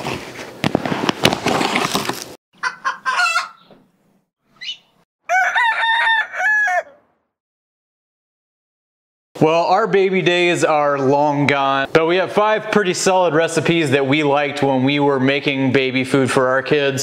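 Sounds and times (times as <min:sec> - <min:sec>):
rooster crowing: 0:02.6 - 0:03.6, 0:05.2 - 0:07.2
hen clucking: 0:02.6 - 0:03.8.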